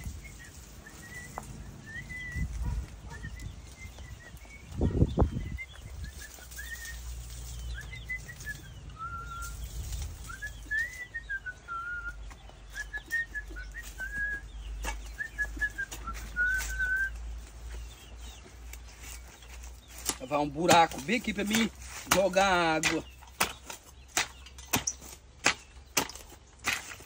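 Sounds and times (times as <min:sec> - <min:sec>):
person whistling a tune: 0:07.8 - 0:09.6, 0:10.2 - 0:14.5, 0:15.1 - 0:17.2.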